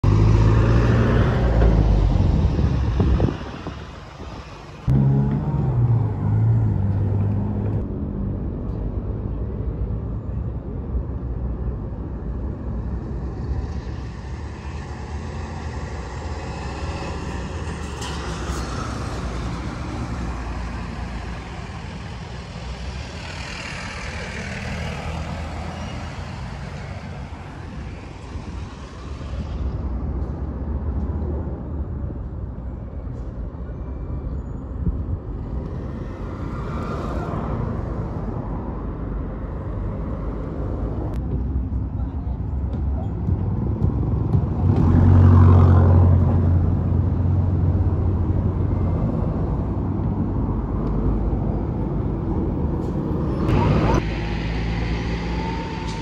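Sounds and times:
road traffic rumble: 0.0s - 56.0s
vehicle passing by: 4.4s - 8.3s.

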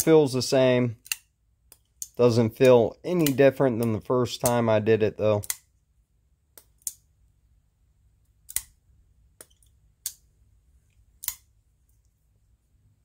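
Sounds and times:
pocket knife clicking open and shut: 8.5s - 8.8s, 11.2s - 11.5s.

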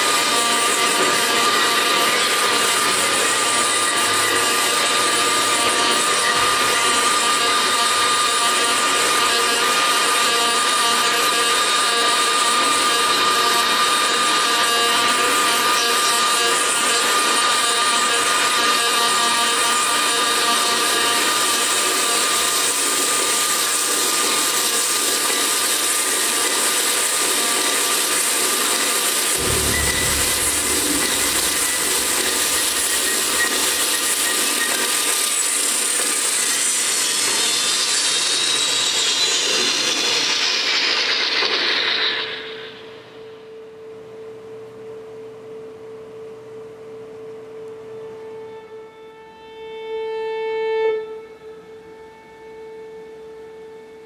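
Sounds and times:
low rumble: 29.4s - 33.8s
dense wash of noise: 29.4s - 34.0s
held high tone: 29.4s - 34.1s.

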